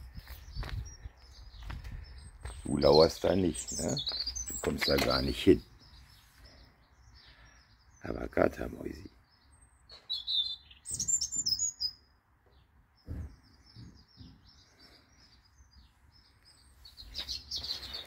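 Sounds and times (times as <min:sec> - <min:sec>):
birds chirping and twittering: 0:00.0 - 0:18.0.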